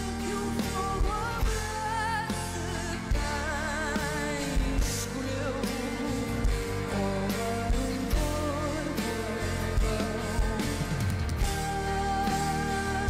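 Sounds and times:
live band playing: 0:00.0 - 0:13.0
woman singing with vibrato: 0:00.0 - 0:13.0.

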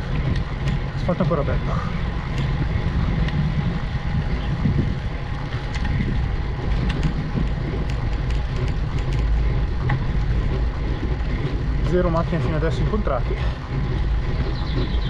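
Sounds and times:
wind noise on microphone: 0:00.0 - 0:15.0.

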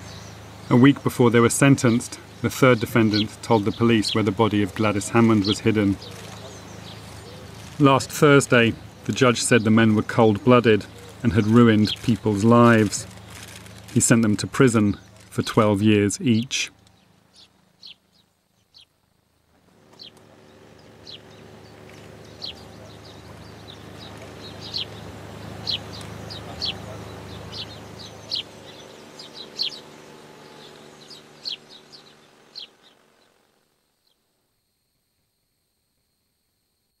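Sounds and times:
low steady hum: 0:00.0 - 0:36.8
high downward bird chirps: 0:19.9 - 0:33.4.

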